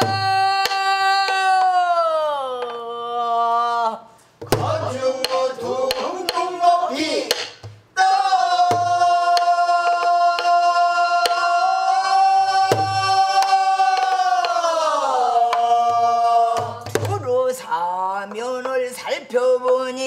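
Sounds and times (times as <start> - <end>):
person singing: 0.0 - 7.3, 8.0 - 20.0
barrel drum thumps: 4.4 - 6.4.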